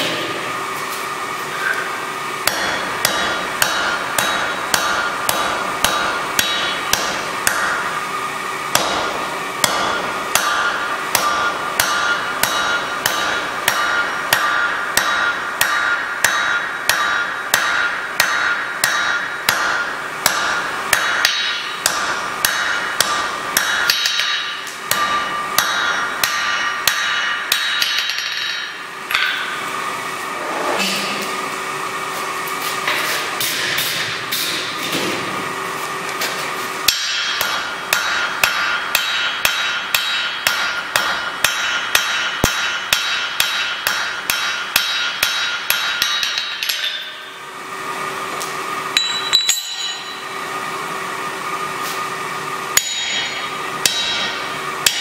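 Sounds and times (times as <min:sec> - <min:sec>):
hammer striking metal on anvil: 0:00.0 - 0:00.4, 0:02.4 - 0:07.9, 0:08.7 - 0:29.7, 0:33.4 - 0:34.8, 0:36.8 - 0:47.4, 0:48.9 - 0:50.5, 0:52.7 - 0:55.0
steady hum: 0:00.0 - 0:55.0.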